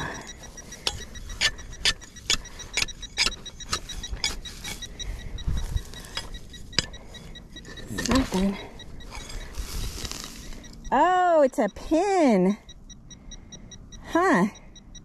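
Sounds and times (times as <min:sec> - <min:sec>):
digging tool chopping soil: 0:07.9 - 0:08.5.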